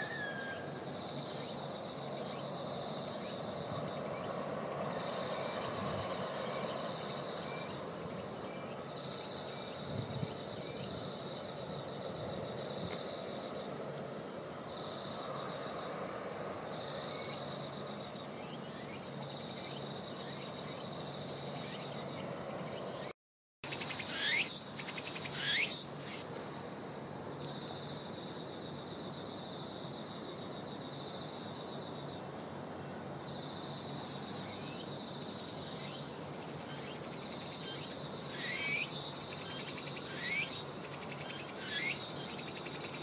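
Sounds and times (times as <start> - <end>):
insect trilling: 23.7 - 26.3, 36.7 - 43.0.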